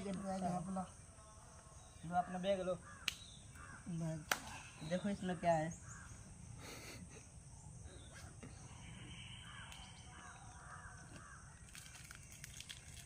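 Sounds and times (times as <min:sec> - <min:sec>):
distant birds calling: 0:00.0 - 0:12.5.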